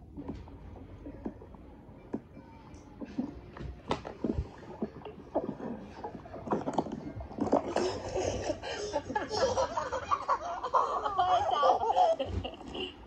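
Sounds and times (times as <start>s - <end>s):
child giggling: 7.8s - 13.0s.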